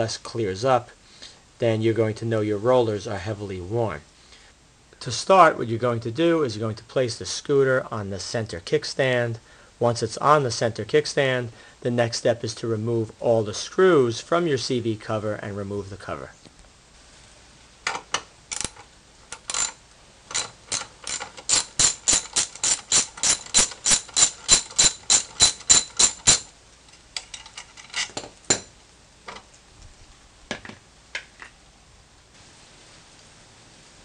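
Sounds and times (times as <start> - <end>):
ratchet wrench clicking: 18.5 - 26.5.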